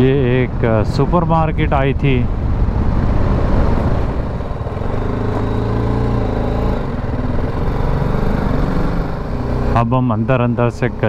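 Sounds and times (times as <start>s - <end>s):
motorcycle engine running: 2.5s - 11.0s.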